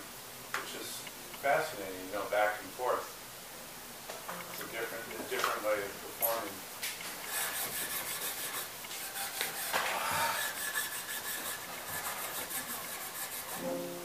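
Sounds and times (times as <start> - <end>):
cloth rubbing cello strings: 10.4 - 14.0.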